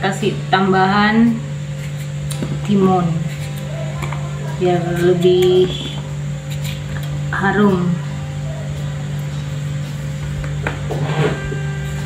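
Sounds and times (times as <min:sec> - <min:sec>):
steady low hum: 0:00.0 - 0:12.0
knife cutting cucumber: 0:01.8 - 0:07.2.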